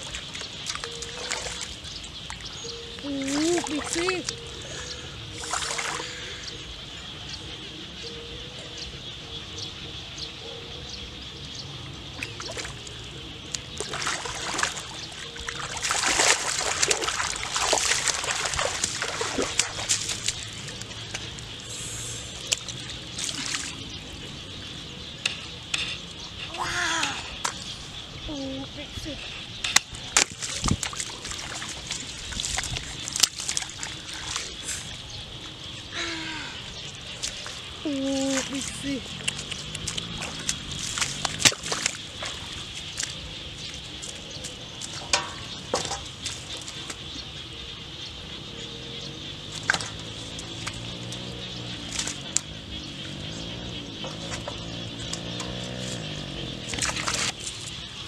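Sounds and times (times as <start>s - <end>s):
hands splashing in shallow water: 0.0s - 2.4s, 5.4s - 6.2s, 13.5s - 21.4s, 22.4s - 23.8s, 30.1s - 34.9s, 37.2s - 47.0s, 56.7s - 57.8s.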